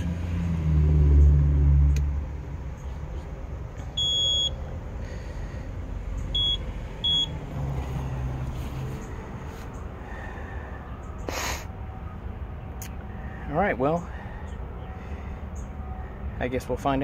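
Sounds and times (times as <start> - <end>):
lawn mower electronic beeps: 4.0 - 4.6, 6.3 - 7.5.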